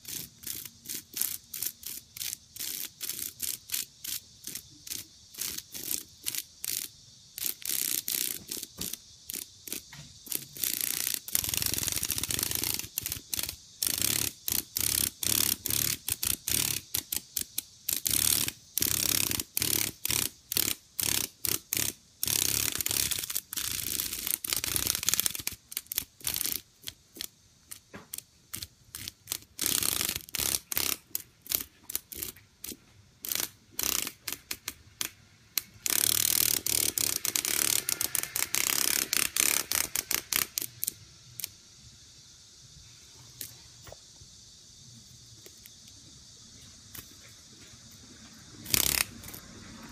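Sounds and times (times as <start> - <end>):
cicada rattling buzz: 0.0 - 49.9.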